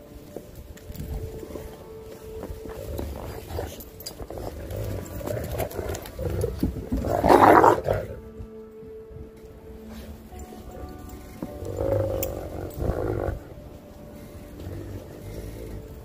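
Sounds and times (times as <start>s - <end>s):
dogs growling: 1.5s - 8.4s, 11.1s - 16.0s.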